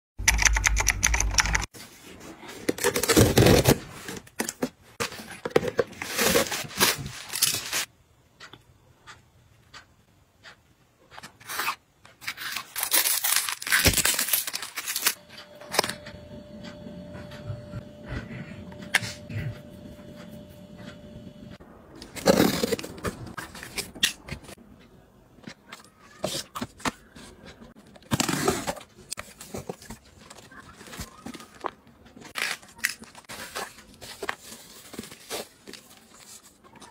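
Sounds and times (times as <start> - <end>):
plastic wrap and cardboard rustling: 1.8 - 7.9, 11.4 - 15.9, 26.2 - 36.9.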